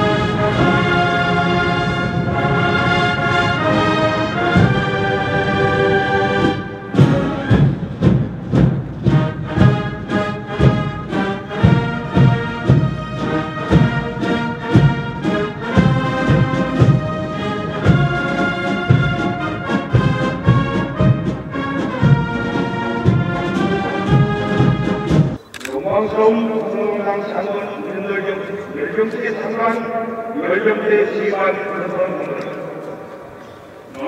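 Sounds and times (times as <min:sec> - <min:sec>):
brass band playing chords: 0:00.0 - 0:25.4
steady drum beat: 0:06.4 - 0:25.4.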